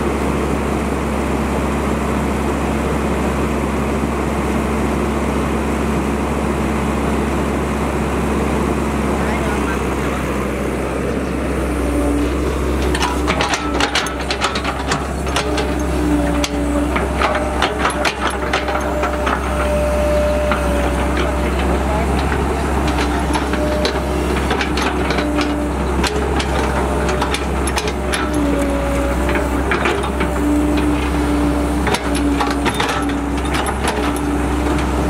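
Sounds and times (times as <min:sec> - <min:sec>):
excavator diesel engine running: 0:00.0 - 0:35.0
whining tones: 0:09.3 - 0:35.0
bucket and tracks clicking: 0:12.0 - 0:35.0.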